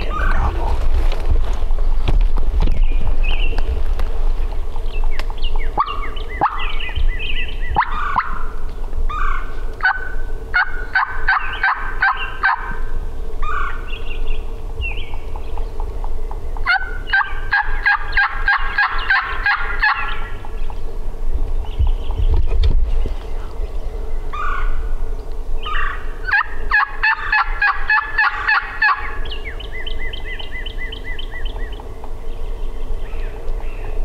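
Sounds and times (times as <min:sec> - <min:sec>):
turkey calling: 0:00.0 - 0:00.8, 0:05.0 - 0:20.8, 0:24.2 - 0:25.0, 0:25.6 - 0:33.9.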